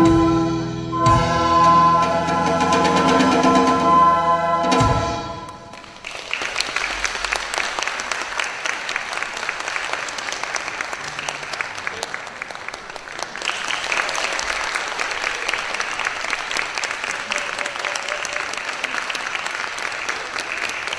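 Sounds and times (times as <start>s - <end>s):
audience applauding: 5.5s - 20.9s.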